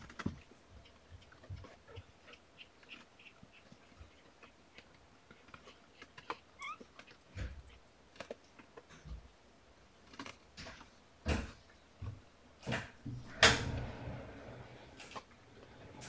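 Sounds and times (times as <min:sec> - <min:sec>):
soft knocks and rustles: 0:10.2 - 0:16.0.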